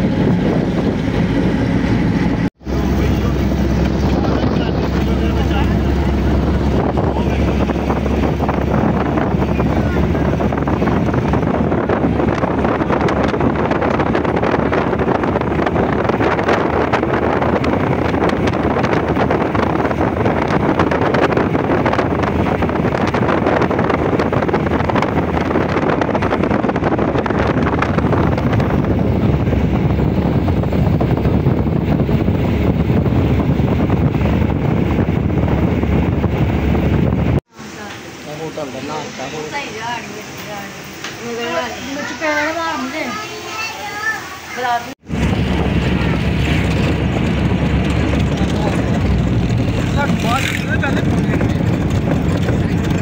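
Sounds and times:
wind on microphone: 0:00.0 - 0:37.5, 0:44.9 - 0:53.0
road and engine noise: 0:00.0 - 0:53.0.

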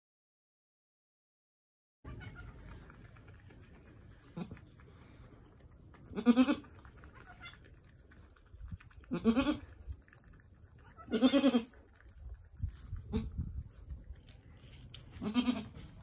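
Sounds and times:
goat bleating: 0:02.1 - 0:02.9, 0:04.2 - 0:04.7, 0:06.1 - 0:07.7, 0:09.1 - 0:09.8, 0:10.8 - 0:11.9, 0:13.0 - 0:13.4, 0:15.1 - 0:16.0.

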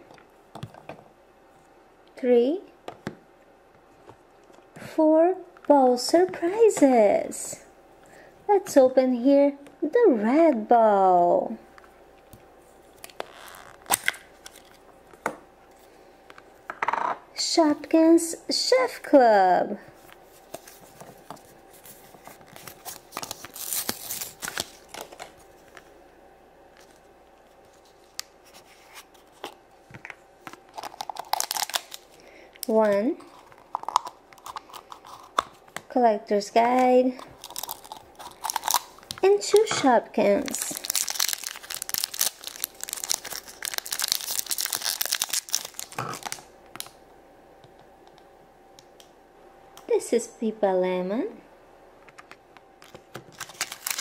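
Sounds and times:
plastic packaging crinkling and tearing: 0:12.8 - 0:14.8, 0:20.4 - 0:25.9, 0:30.5 - 0:35.8, 0:37.2 - 0:47.0, 0:52.8 - 0:54.0.

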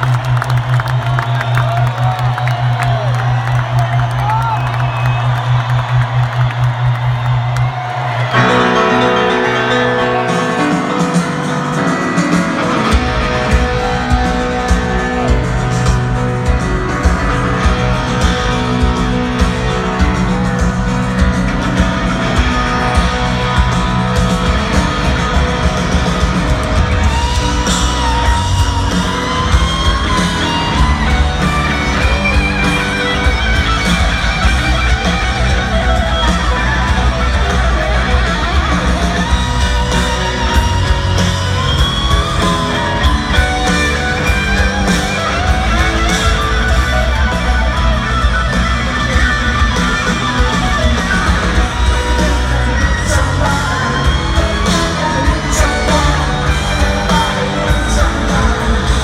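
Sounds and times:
live rock band playing: 0:00.0 - 0:59.0.

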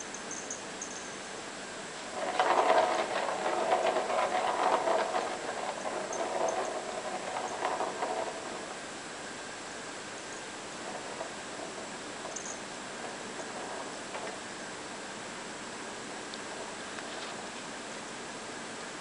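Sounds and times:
plastic ball rattling around track: 0:02.0 - 0:08.8.

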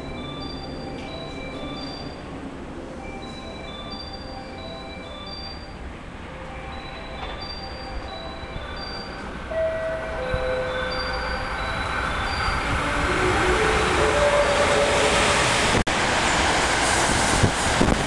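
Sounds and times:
electric train passing at speed: 0:00.0 - 0:18.0.

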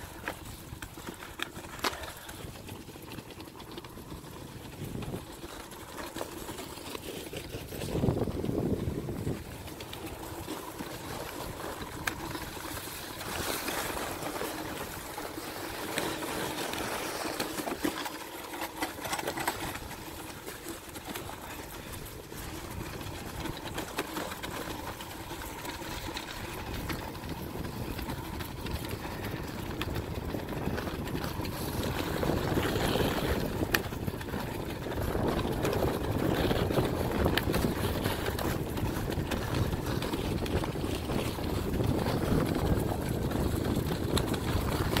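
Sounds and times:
wind on microphone: 0:07.3 - 0:17.3, 0:21.1 - 0:45.0
sledge runners hissing on snow: 0:09.7 - 0:17.7.

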